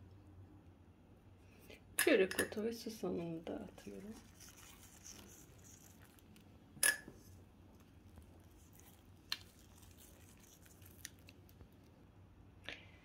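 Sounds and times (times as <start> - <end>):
seeds ticking on dough: 3.6 - 12.0.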